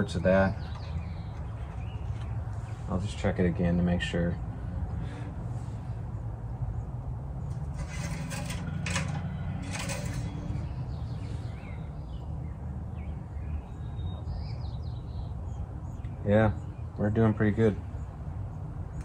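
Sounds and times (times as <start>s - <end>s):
dipstick rustling scrapes: 7.5s - 10.6s.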